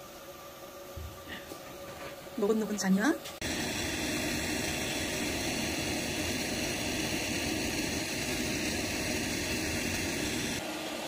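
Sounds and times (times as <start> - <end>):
dryer blowing air: 3.4 - 11.0.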